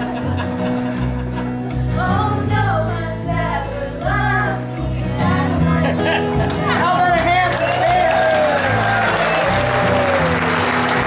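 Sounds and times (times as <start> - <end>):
strummed acoustic guitar: 0.0 - 11.0
upright bass: 0.0 - 11.0
several voices singing: 1.9 - 6.8.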